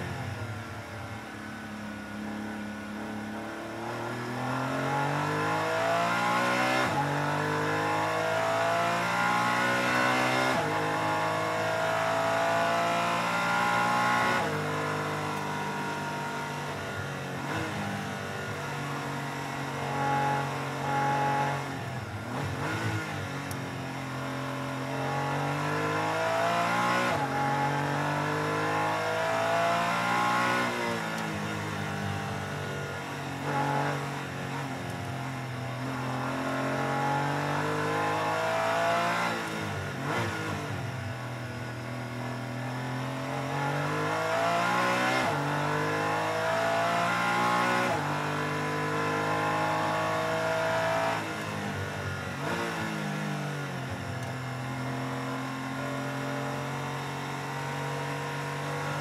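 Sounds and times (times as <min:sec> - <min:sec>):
race car engine at full throttle: 0:00.0 - 0:59.0.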